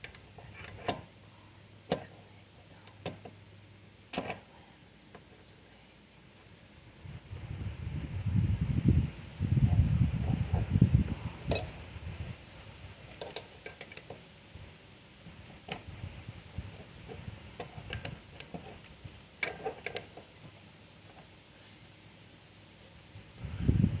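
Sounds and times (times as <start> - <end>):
metal clinking against pulley: 11.5 - 11.7.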